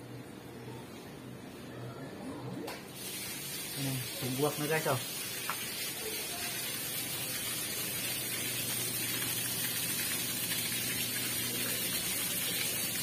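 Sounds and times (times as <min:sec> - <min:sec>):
faint pump hum: 0:00.0 - 0:13.0
water gushing onto concrete: 0:03.0 - 0:13.0.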